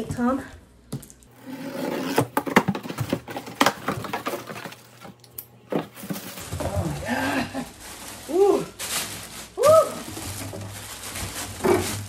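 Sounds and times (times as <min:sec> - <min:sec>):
cardboard scrapes and rustles: 0:01.4 - 0:04.8.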